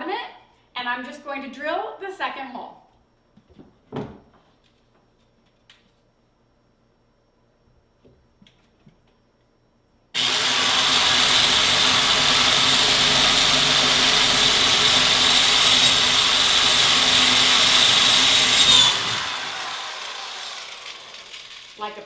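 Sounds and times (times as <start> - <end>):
power drill boring wood: 10.2 - 21.8.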